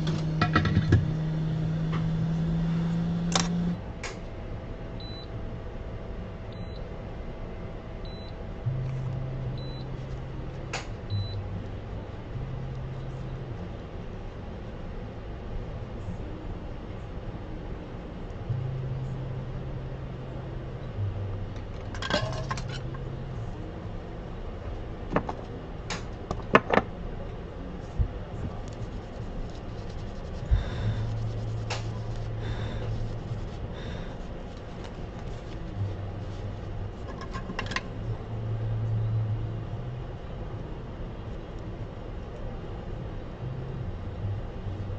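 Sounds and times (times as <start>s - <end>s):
low steady hum: 0.0s - 44.9s.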